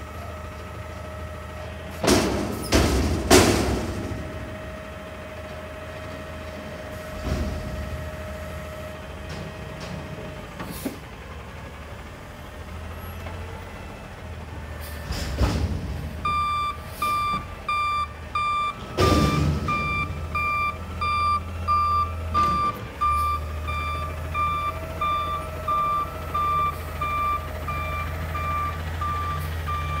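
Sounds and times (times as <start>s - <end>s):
garbage truck engine running: 0.0s - 30.0s
reversing alarm beeping: 16.2s - 30.0s.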